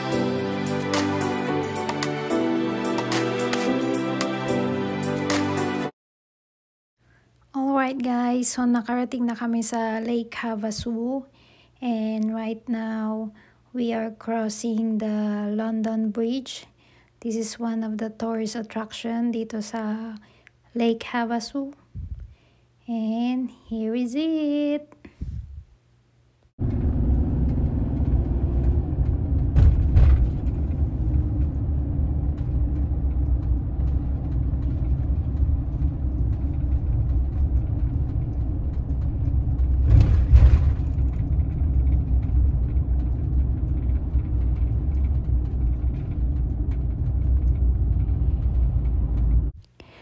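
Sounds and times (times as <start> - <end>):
van driving rumble: 26.6 - 49.6.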